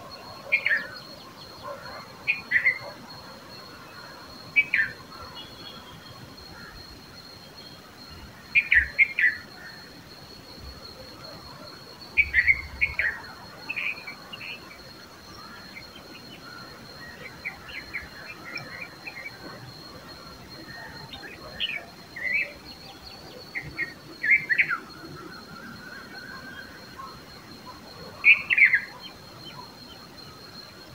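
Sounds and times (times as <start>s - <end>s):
bulbuls chirping: 12.0s - 30.9s.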